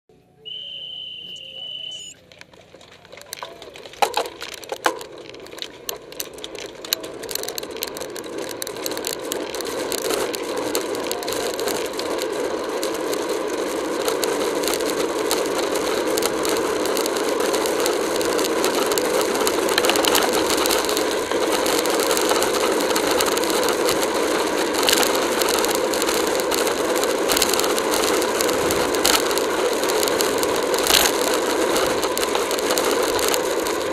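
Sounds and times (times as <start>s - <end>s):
steady high tone: 0.2s - 2.2s.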